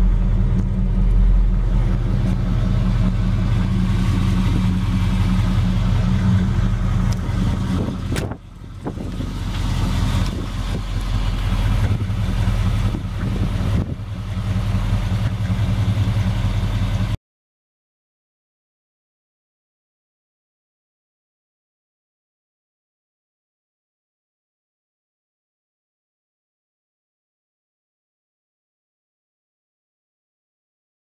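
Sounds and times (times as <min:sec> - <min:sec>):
car engine idling: 0:00.0 - 0:17.2.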